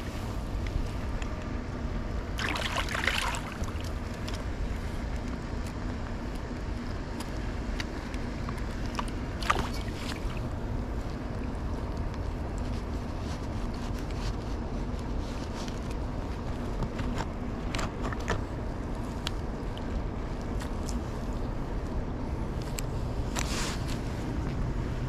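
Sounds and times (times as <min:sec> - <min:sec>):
steady low rumble: 0:00.0 - 0:25.0
fish thrashing water splashing: 0:02.4 - 0:04.0, 0:09.4 - 0:10.4.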